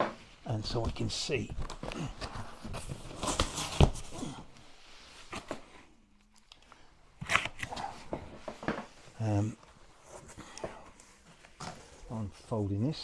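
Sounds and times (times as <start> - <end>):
cardboard crackling and scraping: 1.6 - 4.4.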